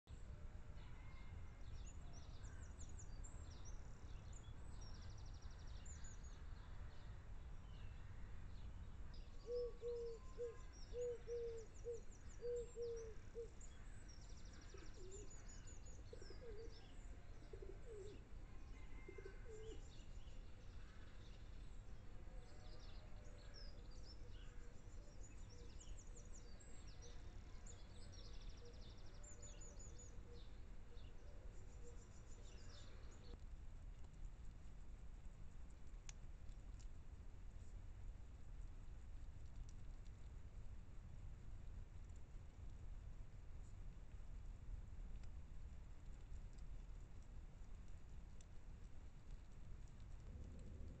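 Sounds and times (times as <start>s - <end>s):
small birds chirping: 2.4s - 34.6s
pigeon cooing: 9.4s - 13.5s, 17.4s - 18.2s, 19.0s - 19.8s
steady low rumble: 49.1s - 51.0s.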